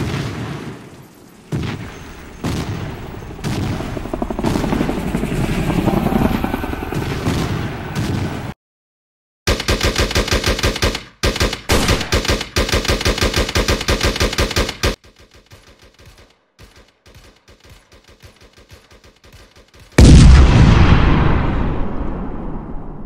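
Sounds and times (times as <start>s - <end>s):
rapid automatic gunfire: 2.4s - 6.1s, 9.5s - 20.2s
loud explosion: 20.0s - 23.0s.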